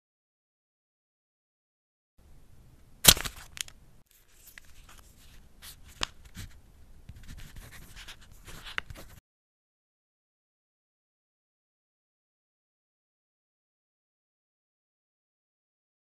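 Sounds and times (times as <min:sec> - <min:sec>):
pen scratching on paper: 0:05.1 - 0:09.2.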